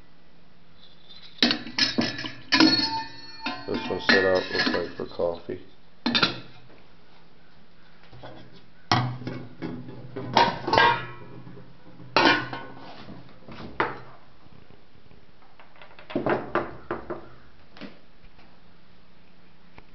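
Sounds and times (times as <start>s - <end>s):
copper pots and pans clanking: 1.1s - 5.3s, 6.1s - 6.7s, 8.2s - 12.9s.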